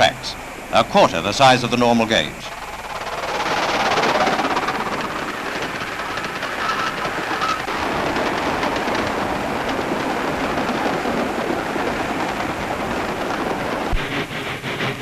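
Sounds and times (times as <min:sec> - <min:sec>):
steam train rattling along track: 0:00.0 - 0:15.0.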